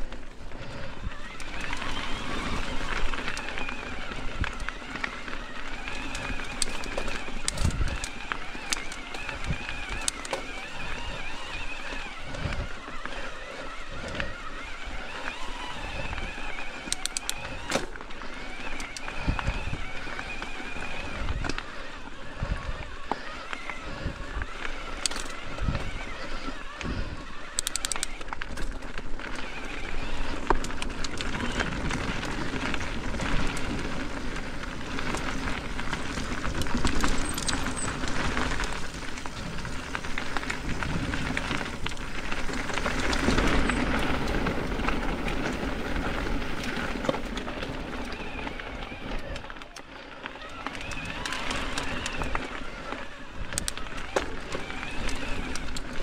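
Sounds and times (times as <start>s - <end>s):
bike bumps and rattles: 0.0s - 21.6s
mountain bike tyres on dirt trail: 0.0s - 56.0s
sharp clicks: 15.2s - 21.7s, 23.0s - 28.8s.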